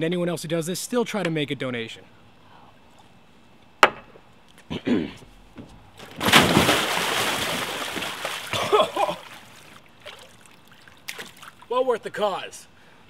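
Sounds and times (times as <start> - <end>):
water sloshing: 5.9 - 11.7
big splash into water: 6.0 - 9.4.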